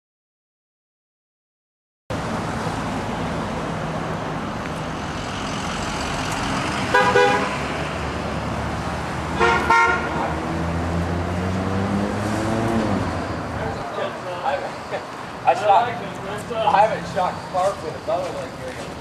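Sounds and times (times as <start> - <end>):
street traffic noise: 2.1 - 19.0
car horns honking: 6.9 - 7.7, 9.3 - 10.3.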